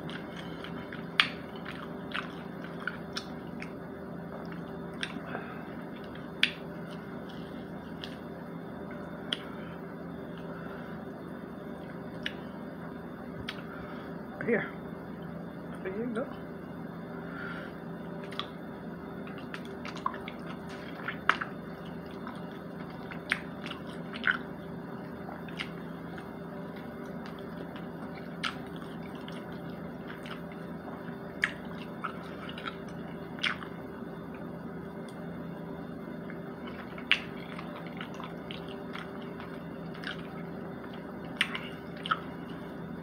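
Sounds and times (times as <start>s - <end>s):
wet chewing and smacking: 0.0s - 9.6s, 18.2s - 35.3s, 36.2s - 42.8s.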